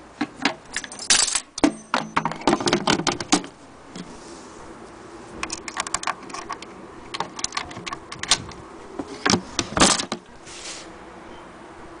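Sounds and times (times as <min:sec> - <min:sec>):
faint steady hum: 0:00.0 - 0:12.0
wooden case clicks and rattles: 0:00.2 - 0:04.1, 0:05.4 - 0:10.3.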